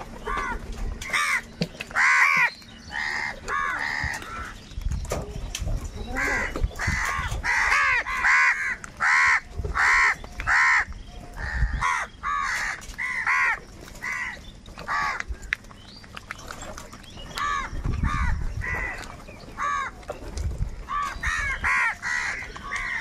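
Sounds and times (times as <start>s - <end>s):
crows cawing: 0.2s - 4.6s, 6.2s - 15.3s, 17.4s - 20.0s, 20.9s - 23.0s.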